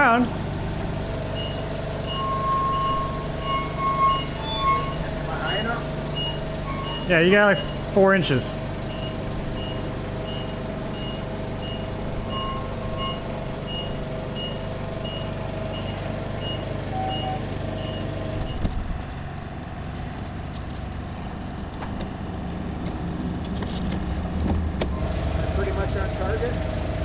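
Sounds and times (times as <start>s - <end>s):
forklift engine running: 0.0s - 27.0s
backup alarm beeping: 1.3s - 18.6s.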